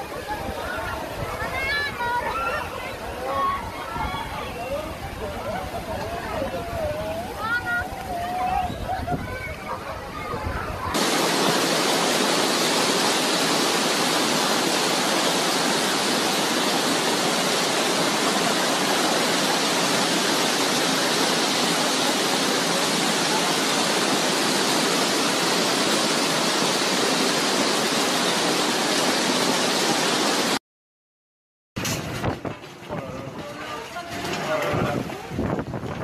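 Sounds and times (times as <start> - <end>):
heavy rain and hail pouring: 10.9 - 30.6, 31.8 - 36.0.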